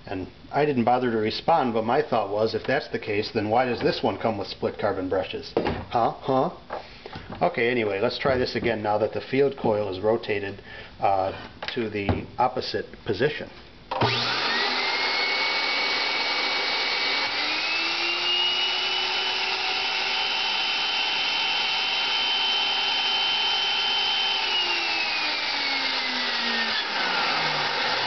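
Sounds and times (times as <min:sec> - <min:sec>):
vacuum motor whining: 0:13.9 - 0:28.0.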